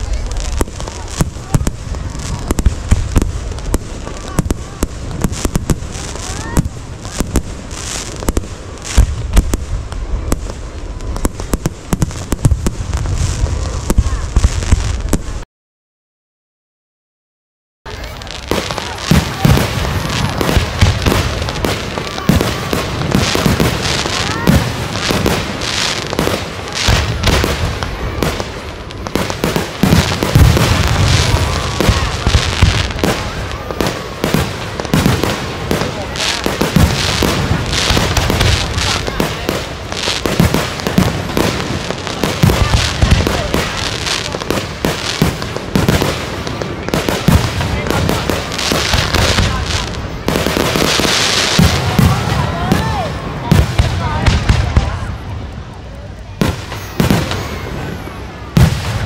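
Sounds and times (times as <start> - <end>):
fireworks bangs and crackling: 0.0 - 15.4, 17.9 - 59.0.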